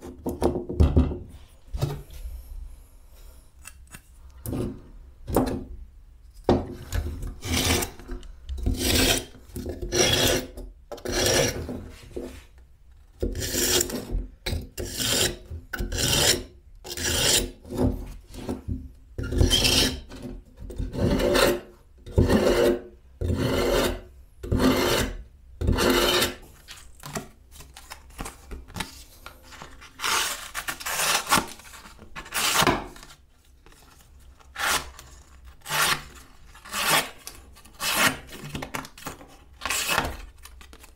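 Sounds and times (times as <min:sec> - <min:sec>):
knife scraping on sharpener: 0:08.7 - 0:09.3, 0:19.2 - 0:20.1, 0:21.0 - 0:26.4.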